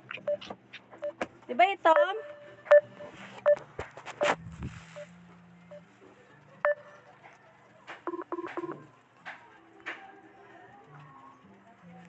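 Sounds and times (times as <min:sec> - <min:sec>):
call-ended beeps: 0:02.0 - 0:03.6.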